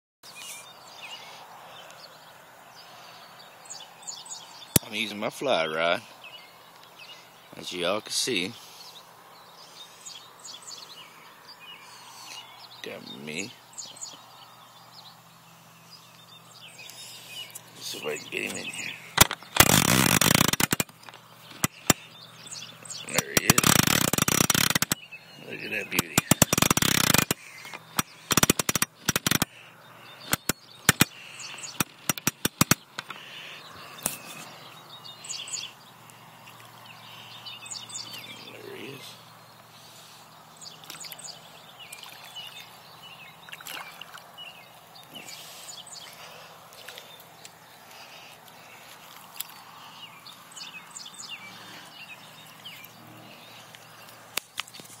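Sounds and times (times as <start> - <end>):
birds chirping and calling: 0.2 - 55.0
faint steady background noise: 0.2 - 55.0
sharp clicks and knocks: 19.2 - 22.0, 23.1 - 25.0, 25.9 - 29.5, 30.3 - 31.1, 31.7 - 33.2.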